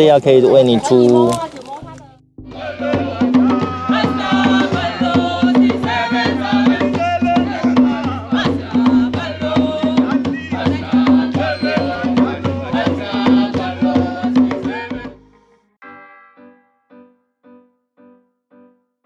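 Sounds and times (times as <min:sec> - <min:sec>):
hand drums beating: 0:01.3 - 0:15.1
group singing: 0:02.5 - 0:15.2.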